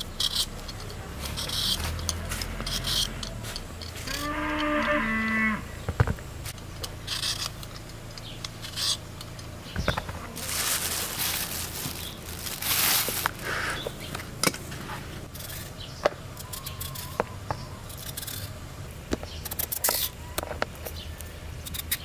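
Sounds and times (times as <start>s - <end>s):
peeler scraping potato skin: 0.0s - 4.8s, 6.8s - 9.4s, 15.3s - 15.7s, 16.4s - 17.2s, 17.8s - 18.6s, 19.4s - 20.2s, 21.6s - 22.0s
cow mooing: 4.1s - 5.7s.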